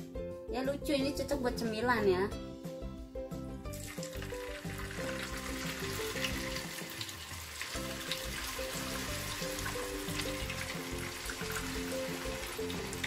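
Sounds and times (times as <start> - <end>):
food deep-frying in oil: 3.6 - 13.0.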